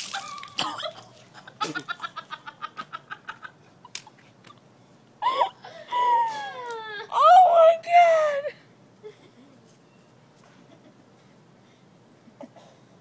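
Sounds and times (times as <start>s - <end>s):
liquid splashing on pavement: 0.0s - 1.3s.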